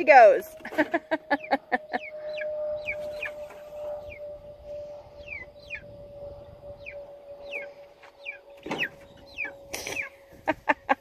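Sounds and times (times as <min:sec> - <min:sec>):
chicks peeping: 0:01.4 - 0:04.2, 0:05.2 - 0:05.9, 0:06.7 - 0:10.6
chickens clucking: 0:07.5 - 0:10.6.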